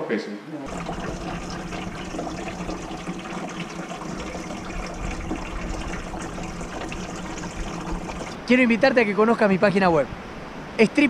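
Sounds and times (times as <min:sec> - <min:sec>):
water running: 0:00.7 - 0:09.0.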